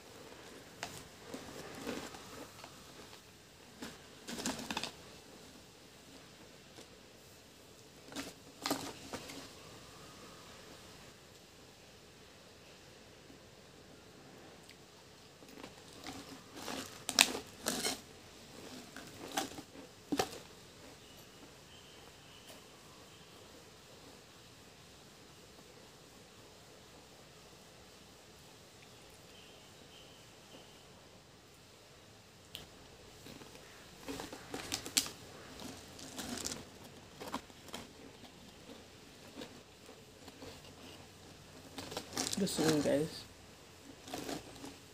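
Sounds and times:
crisps crackling in can: 0.4s - 5.0s, 15.5s - 20.5s, 32.5s - 43.3s, 43.9s - 44.9s.

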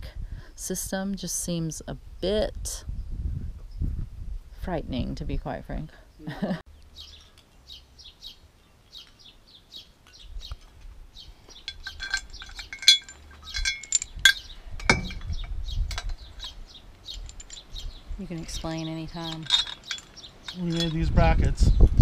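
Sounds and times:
steel brackets clinking: 10.5s - 21.5s
heavy metal knock: 14.8s - 15.5s.

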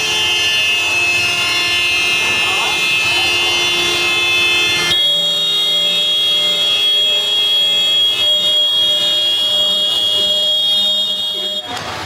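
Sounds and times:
steady high-pitched horn: 0.0s - 11.7s
vehicle horns honking: 0.0s - 12.0s.

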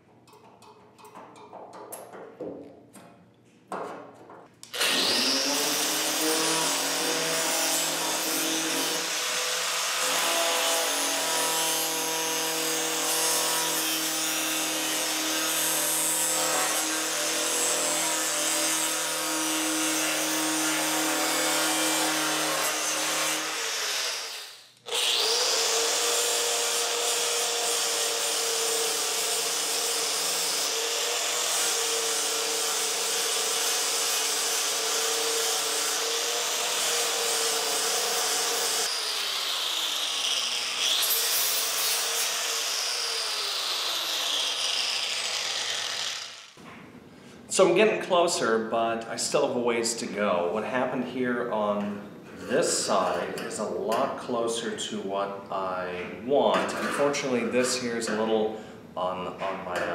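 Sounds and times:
angle grinder grinding steel: 4.6s - 46.6s.

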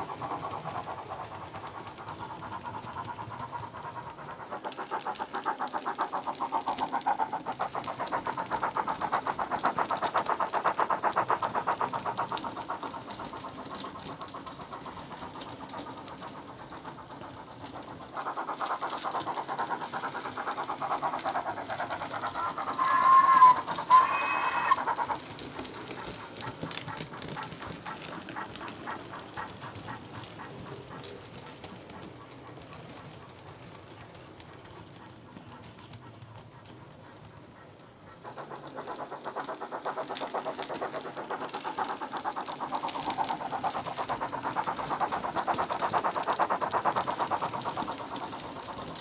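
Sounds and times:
model steam locomotive chuffing: 0.0s - 49.0s
locomotive whistle: 22.3s - 24.9s.

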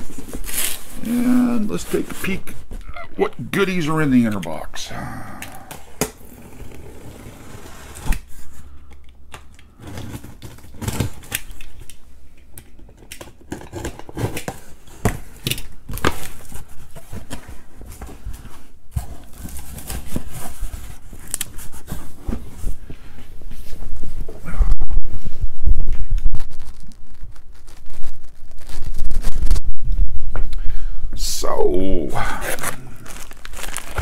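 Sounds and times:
box cutter slitting tape: 13.2s - 14.7s.

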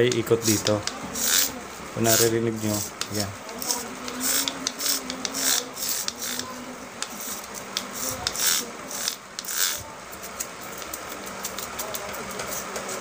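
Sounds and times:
sandpaper rasping on metal: 0.4s - 3.0s.

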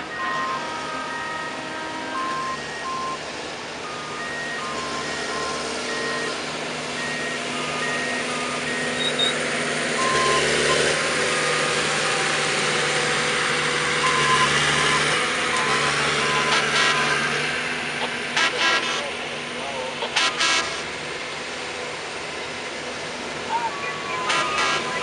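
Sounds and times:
track machine engine running: 0.0s - 25.0s
electronic warning beeps: 0.1s - 3.2s, 3.8s - 6.4s, 7.0s - 11.8s, 14.0s - 17.3s, 23.5s - 25.0s.

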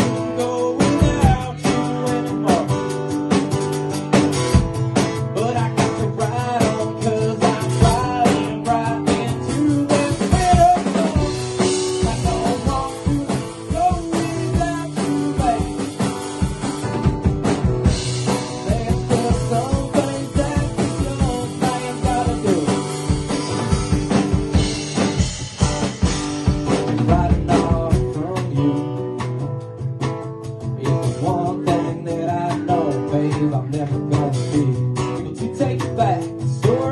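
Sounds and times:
person singing: 0.0s - 2.9s, 5.2s - 16.2s, 18.3s - 23.8s, 26.8s - 29.2s, 30.8s - 36.9s
drum kit: 0.0s - 36.9s
strummed acoustic guitar: 0.0s - 36.9s.

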